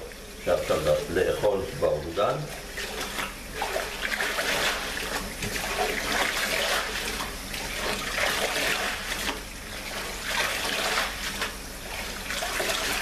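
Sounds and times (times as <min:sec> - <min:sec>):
tap water pouring into pot: 0:00.0 - 0:09.6.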